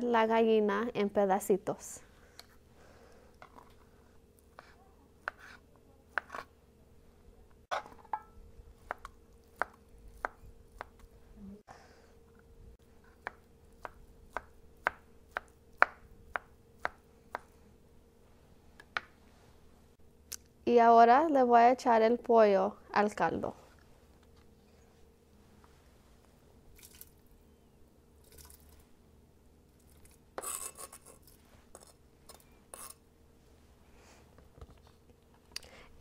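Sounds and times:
knife chopping on cutting board: 4.6 - 6.5.

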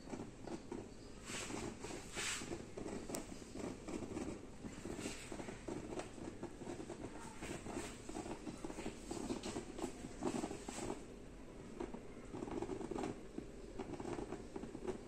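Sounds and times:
water boiling in rice cooker: 0.0 - 15.0.

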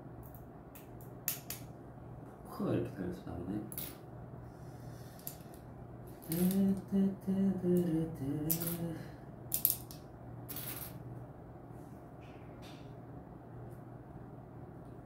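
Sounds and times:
man humming: 6.2 - 9.2.

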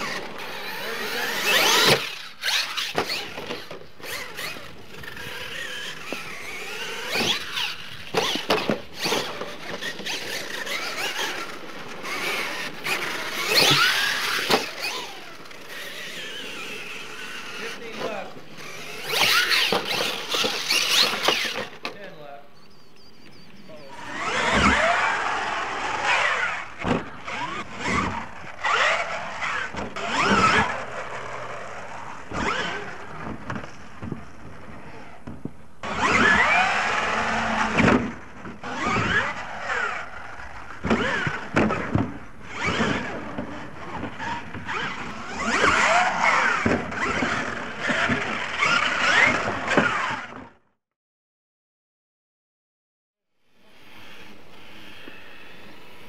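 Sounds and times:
tyres spinning in dirt: 0.0 - 22.2, 23.6 - 35.2
electric motor whining: 0.0 - 33.2, 53.5 - 56.0.

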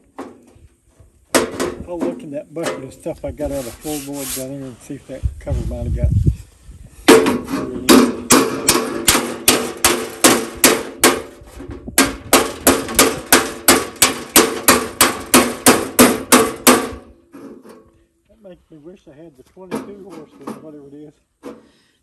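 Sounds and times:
hammer beating sheet metal: 7.1 - 11.4, 12.0 - 17.1.

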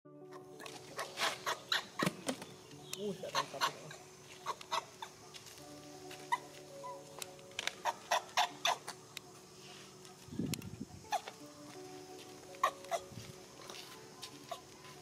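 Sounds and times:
faint background music: 0.1 - 15.0
flip-flop footsteps on pavement: 4.2 - 8.4, 10.0 - 15.0.

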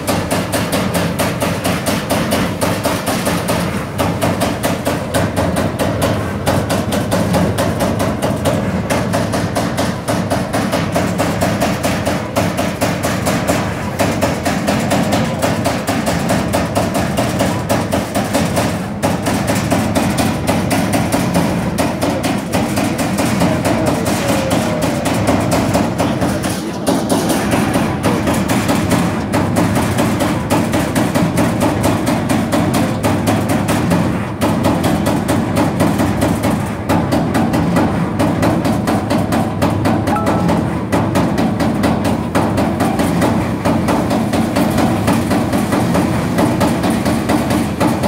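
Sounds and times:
punch press striking metal sheet: 40.0 - 45.3.

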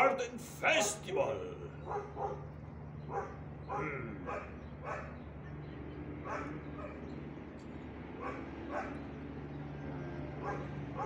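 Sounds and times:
steady low hum: 0.0 - 11.0
dog barking: 1.8 - 2.4, 3.1 - 5.2, 6.2 - 7.0, 8.2 - 9.0, 10.4 - 11.0.

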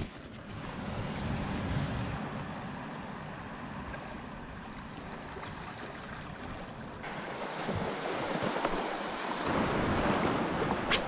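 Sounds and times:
waves washing against rocks: 4.8 - 11.0.

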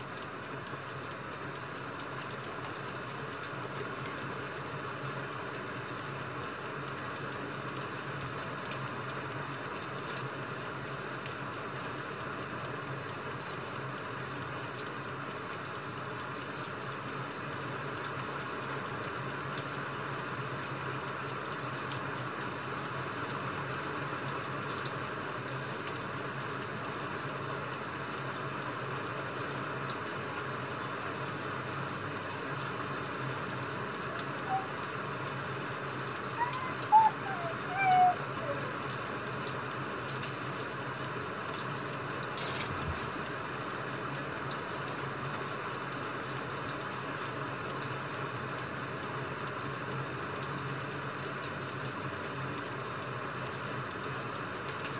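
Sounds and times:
rain hissing: 28.4 - 46.3.

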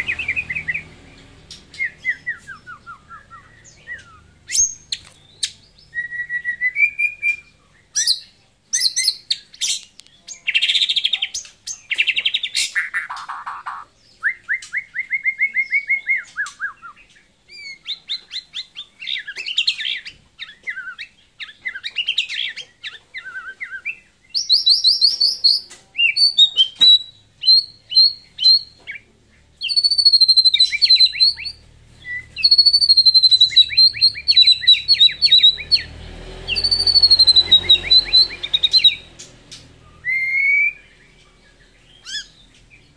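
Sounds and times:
shama bird singing: 0.0 - 42.9.

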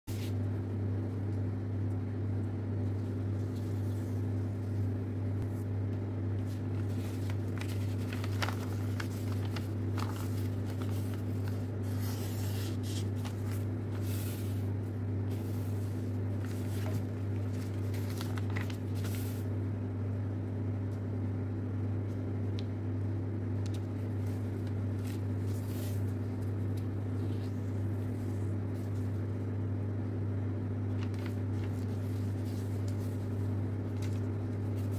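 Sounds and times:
paper rustling as folded: 0.1 - 0.5, 2.8 - 5.6, 6.4 - 19.6, 23.6 - 29.2, 30.9 - 34.9
low mechanical hum: 0.1 - 34.9.

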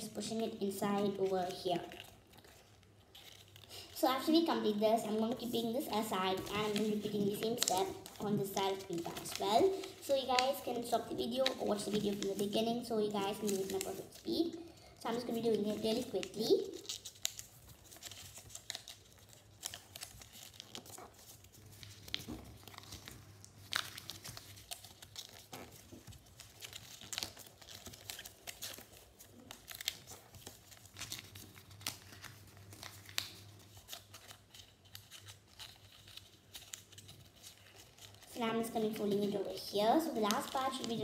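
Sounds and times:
paper rustling and crinkling: 0.0 - 41.0.

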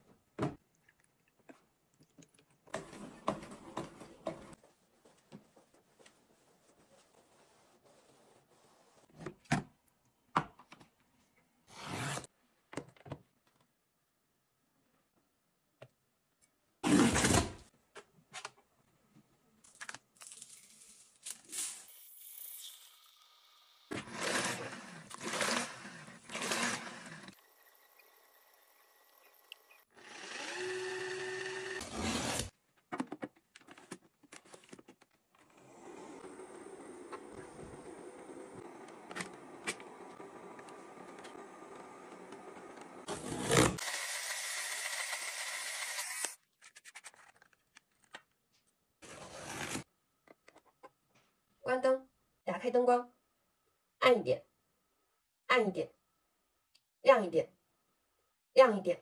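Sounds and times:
appliance motor humming: 25.2 - 31.8.

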